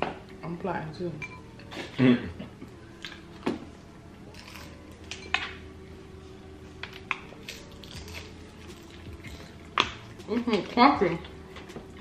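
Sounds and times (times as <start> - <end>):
faint steady hum: 0.0 - 12.0
people chewing: 1.7 - 3.6, 4.3 - 5.2, 6.8 - 10.6.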